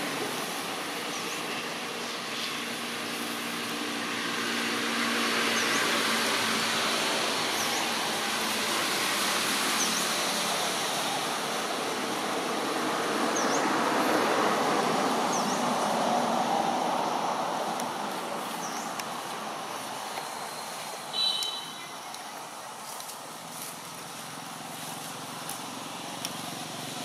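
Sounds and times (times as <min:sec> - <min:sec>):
road traffic noise: 0:00.0 - 0:27.0
faint high chirp: 0:20.5 - 0:22.2.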